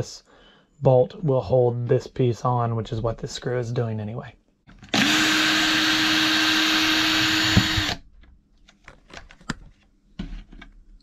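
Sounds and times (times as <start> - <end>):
cordless drill motor whine: 4.9 - 8.0.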